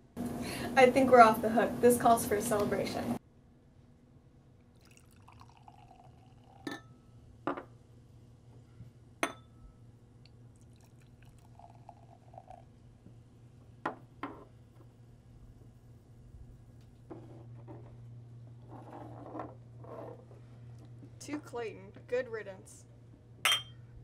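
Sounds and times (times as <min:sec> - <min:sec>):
cider pouring into glass: 0:04.7 - 0:07.0, 0:10.5 - 0:12.9
glass clinks: 0:06.6 - 0:07.0, 0:09.2 - 0:09.5, 0:23.4 - 0:23.8.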